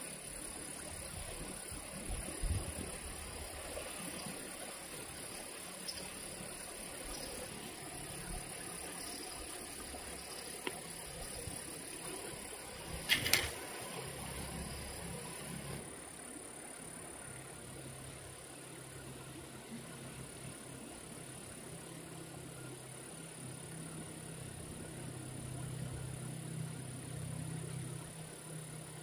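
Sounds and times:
insects droning: 0.0s - 29.0s.

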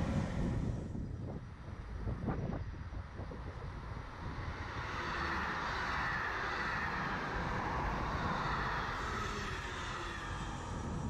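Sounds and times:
train wheels rushing on rail: 3.8s - 11.0s.

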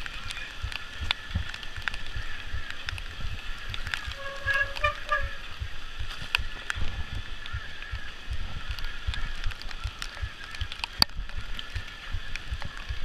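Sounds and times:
bike tyres rolling over roots: 0.0s - 13.0s
short pitched squeal: 4.1s - 5.6s.

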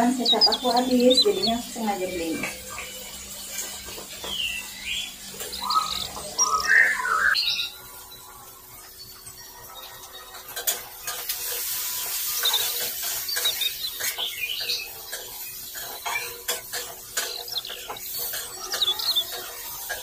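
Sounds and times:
frying sizzle: 0.0s - 20.0s
spatula scraping a wok: 10.6s - 20.0s.

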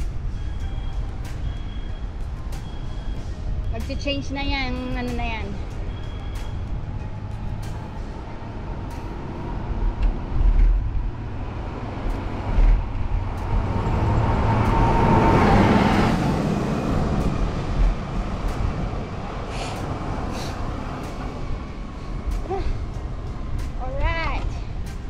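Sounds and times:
motor traffic: 0.0s - 25.0s
wind buffeting microphone: 0.0s - 25.0s
vehicle passing close: 5.0s - 25.0s.

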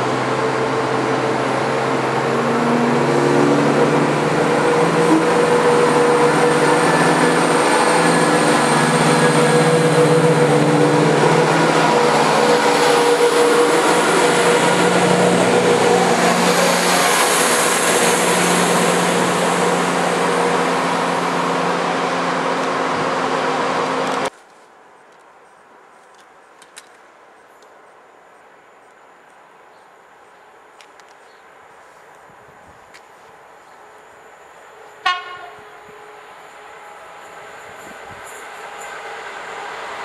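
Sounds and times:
diesel train engines humming: 0.0s - 24.3s, 33.2s - 40.0s
wheel and rail noise: 0.0s - 40.0s.

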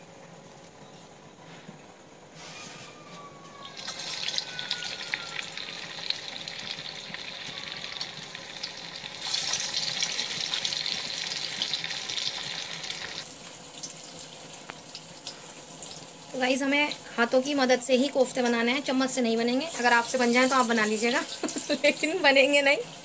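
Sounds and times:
food deep-frying in oil: 3.6s - 23.0s.

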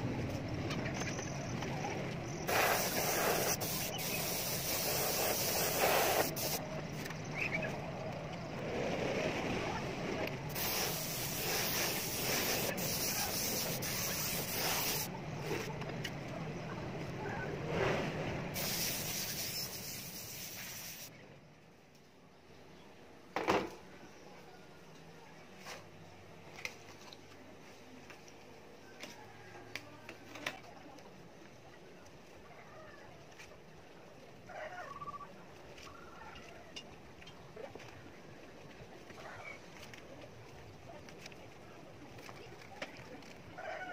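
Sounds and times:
airbrush hissing: 2.5s - 6.6s, 10.5s - 15.1s, 18.6s - 21.1s.

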